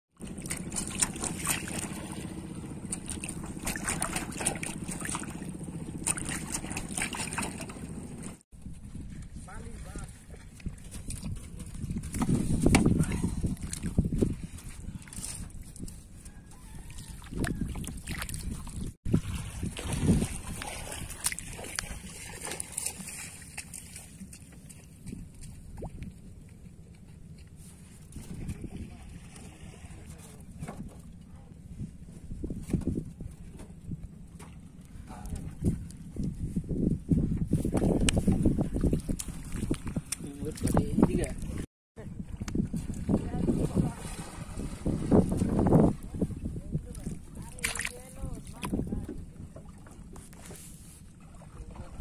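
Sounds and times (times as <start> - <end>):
small waves lapping and splashing: 0.2 - 8.5, 9.6 - 26.3, 27.6 - 30.6, 38.2 - 52.0.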